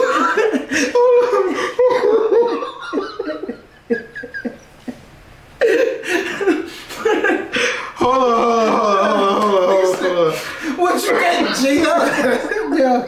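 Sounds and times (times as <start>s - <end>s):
men laughing hard: 0.0s - 13.0s.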